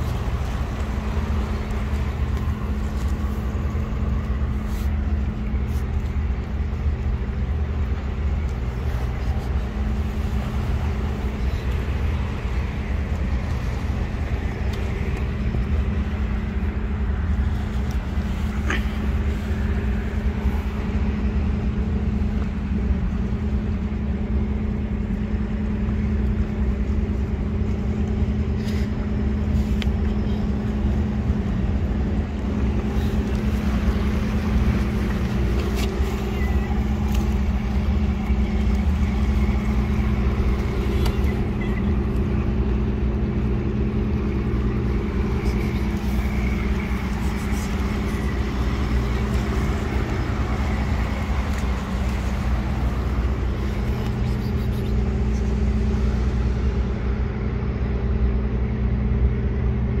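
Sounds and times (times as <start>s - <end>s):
traffic drone: 0.0s - 60.0s.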